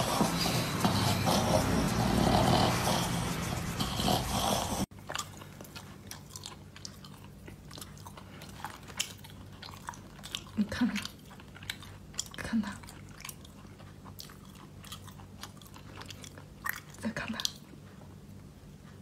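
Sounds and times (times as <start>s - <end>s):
dog breathing loudly: 0.0s - 4.9s
person chewing food: 3.6s - 19.0s.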